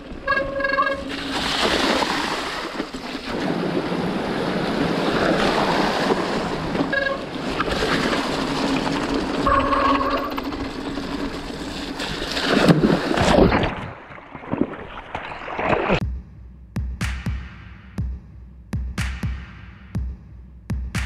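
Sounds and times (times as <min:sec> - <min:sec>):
stream water rushing: 0:01.0 - 0:10.1
short electronic beeps: 0:09.5 - 0:10.3.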